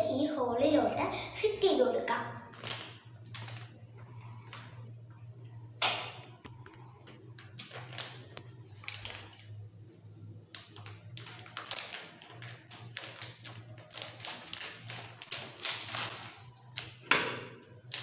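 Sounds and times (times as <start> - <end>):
steady low hum: 0.0 - 17.9
plastic packet crinkling: 7.7 - 9.4, 10.7 - 16.5.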